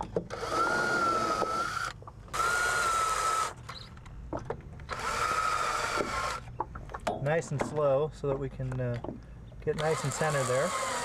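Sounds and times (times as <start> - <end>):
cordless drill whining: 0.3 - 3.8, 4.9 - 6.5, 9.8 - 11.0.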